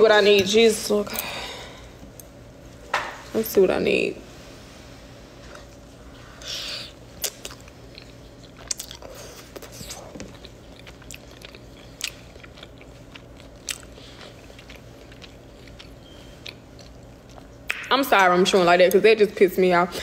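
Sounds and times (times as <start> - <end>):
person chewing food: 5.4 - 17.8.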